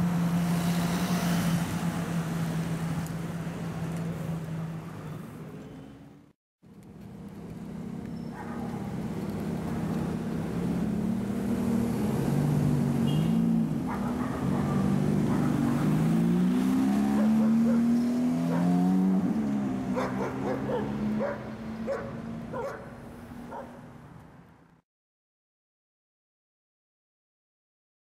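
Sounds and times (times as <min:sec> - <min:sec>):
car engine revving: 0:10.0 - 0:22.6.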